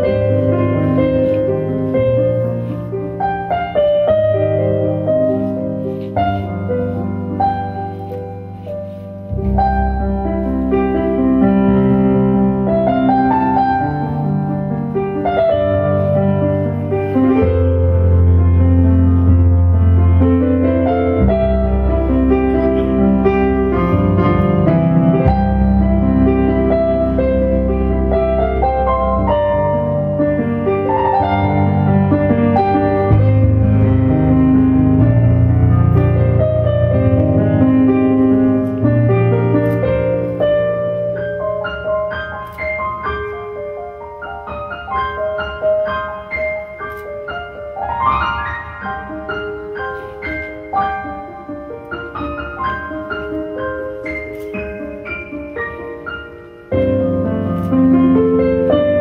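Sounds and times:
piano keyboard music: 0.0s - 59.0s
deep bass part: 21.3s - 26.3s, 32.9s - 37.9s.

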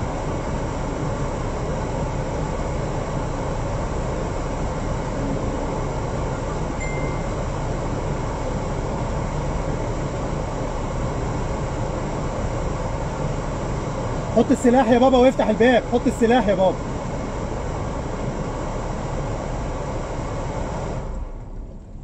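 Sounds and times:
car engine rumble from inside cabin: 0.0s - 22.0s.

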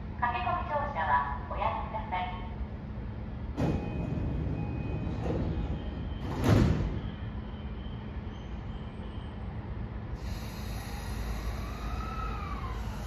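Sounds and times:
low hum of train: 0.0s - 13.0s
train doors shutting thud: 3.5s - 7.3s.

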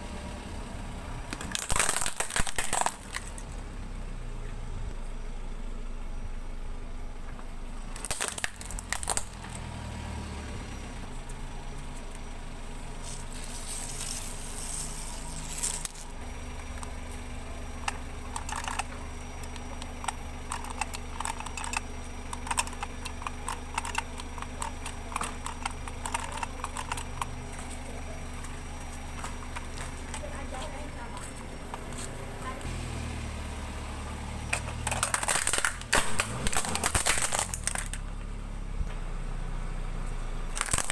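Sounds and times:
car engine idling: 0.0s - 40.9s
plastic toy cracking under tyre: 1.3s - 3.5s, 8.0s - 9.6s, 17.8s - 27.4s, 34.5s - 38.0s, 40.5s - 40.9s
plastic toys clicking and rattling: 1.3s - 3.5s, 8.0s - 9.6s, 13.0s - 17.0s, 17.7s - 27.9s, 34.5s - 38.0s, 40.6s - 40.9s.

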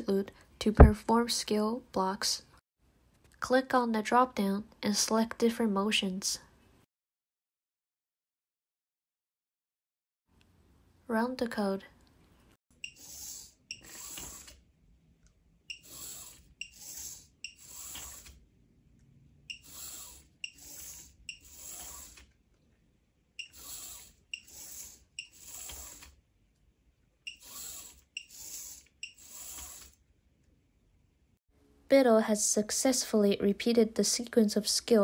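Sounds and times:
servo motors whirring: 12.8s - 14.6s, 15.7s - 18.4s, 19.5s - 22.3s, 23.4s - 26.2s, 27.3s - 30.0s
servo click: 23.4s - 26.2s.

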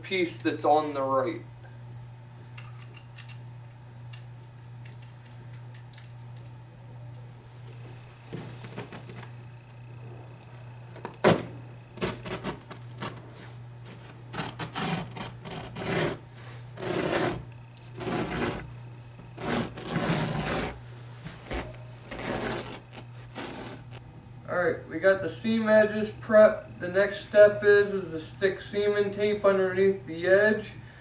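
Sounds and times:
steady low hum: 0.0s - 31.0s
cutter slicing carpet backing: 11.2s - 13.2s, 14.3s - 16.2s, 16.8s - 18.7s, 19.3s - 20.8s, 21.4s - 24.0s.

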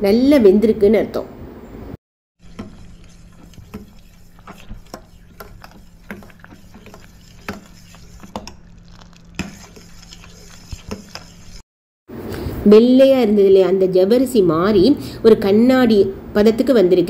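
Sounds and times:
steady low hum: 1.4s - 11.6s
metal ladle scraping a pot: 2.4s - 11.6s.

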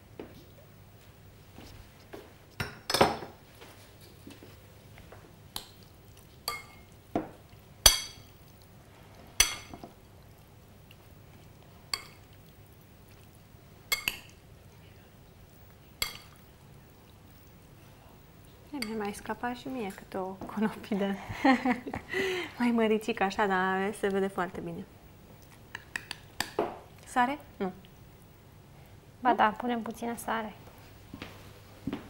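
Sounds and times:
spoon clinking against glass bowl: 6.5s - 6.8s, 16.0s - 16.4s.

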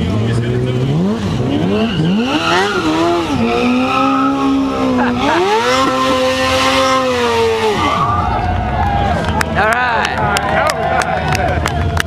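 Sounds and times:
motorcycle engine revving high: 0.0s - 9.1s.

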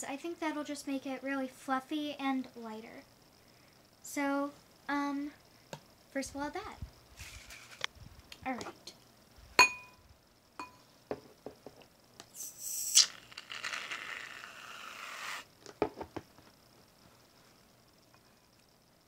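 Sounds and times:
spatula tapping glass bowl: 9.6s - 10.0s, 10.6s - 10.8s
aerosol can hissing foam: 12.3s - 15.5s.

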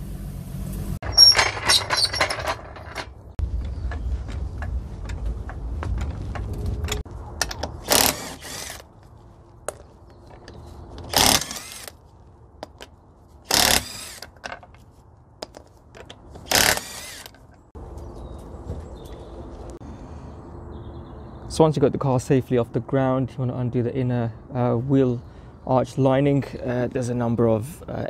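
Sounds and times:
impact wrench bursts: 7.8s - 8.8s, 11.1s - 11.9s, 13.5s - 14.3s, 16.5s - 17.3s.

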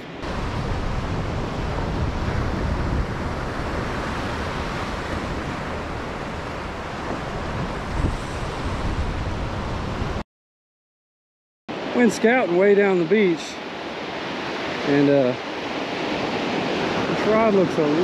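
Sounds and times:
small waves breaking on beach: 0.1s - 10.2s, 11.7s - 18.0s
wind buffeting microphone: 0.1s - 10.2s.

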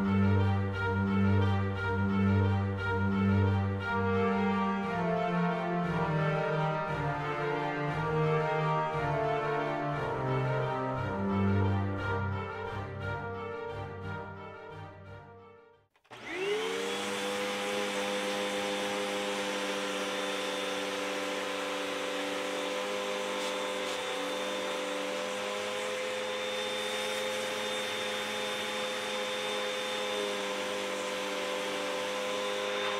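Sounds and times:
vacuum cleaner motor whining: 16.0s - 32.9s.

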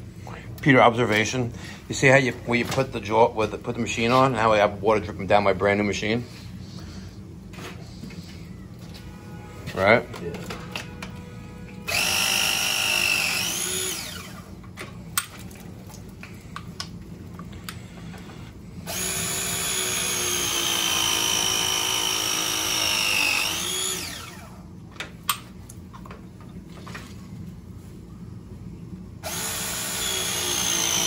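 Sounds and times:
press tool motor whining: 11.8s - 14.5s, 18.9s - 24.6s, 29.2s - 31.0s.

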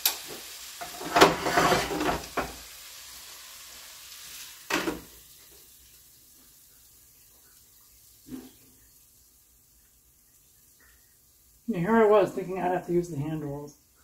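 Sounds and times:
faint sizzle: 0.0s - 14.0s
metal pot clattering and scraping: 0.8s - 2.6s.

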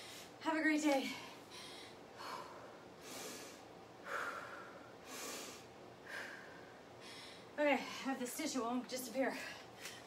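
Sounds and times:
woman breathing hard: 1.2s - 8.1s.

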